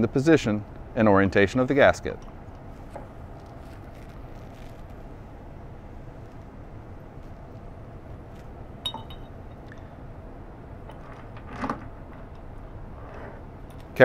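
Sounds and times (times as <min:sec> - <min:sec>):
steady low hum: 0:00.0 - 0:14.0
sharp metallic clink: 0:08.9 - 0:09.4.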